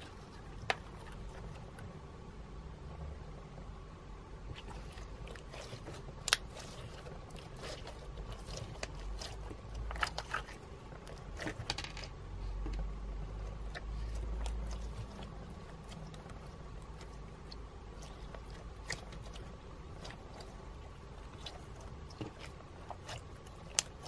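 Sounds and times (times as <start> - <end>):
slime clicking and crackling: 4.5 - 11.8, 13.4 - 24.0.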